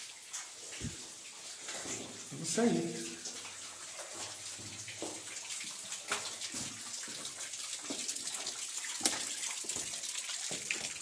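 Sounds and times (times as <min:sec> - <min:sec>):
water splashing onto wet stones: 0:00.0 - 0:11.0.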